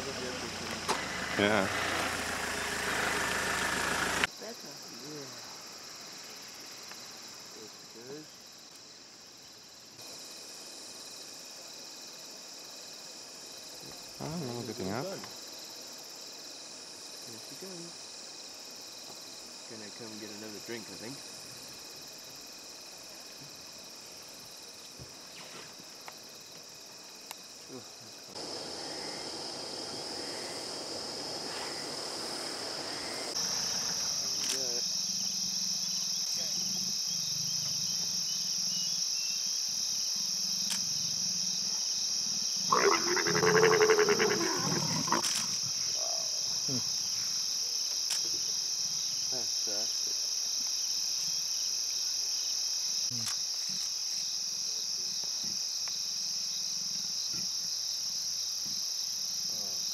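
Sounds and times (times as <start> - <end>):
crickets chirping: 0.0 - 59.9
leopard growling: 42.7 - 45.6.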